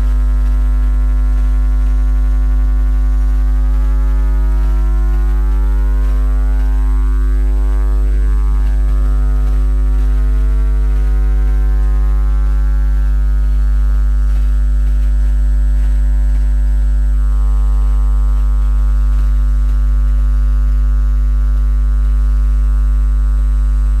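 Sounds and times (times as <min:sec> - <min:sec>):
loud electrical hum: 0:00.0 - 0:24.0.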